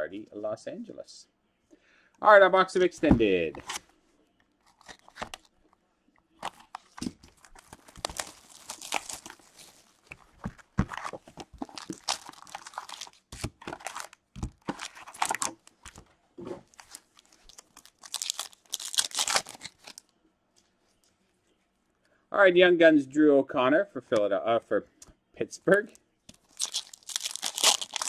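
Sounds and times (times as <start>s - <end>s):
cardboard and wrapper ripping: 6.4s - 16.0s, 16.6s - 20.0s, 26.4s - 28.0s.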